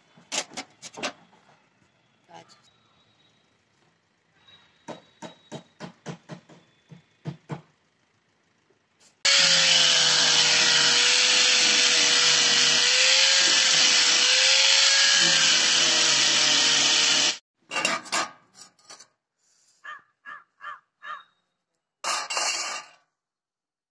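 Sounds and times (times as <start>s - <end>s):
angle grinder grinding wood: 9.2s - 17.4s.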